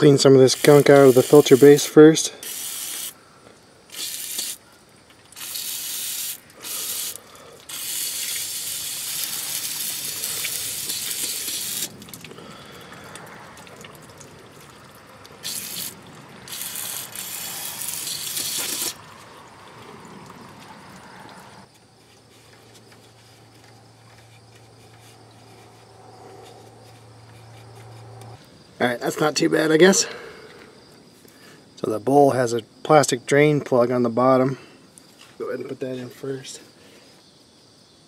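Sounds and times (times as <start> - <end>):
aerosol spray hissing bursts: 0.5 - 3.2, 3.9 - 4.6, 5.4 - 11.9, 15.4 - 19.0.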